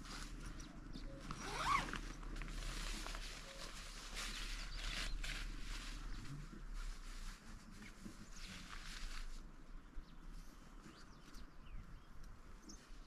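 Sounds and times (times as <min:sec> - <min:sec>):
nylon tent fabric rustling: 0:00.0 - 0:09.7.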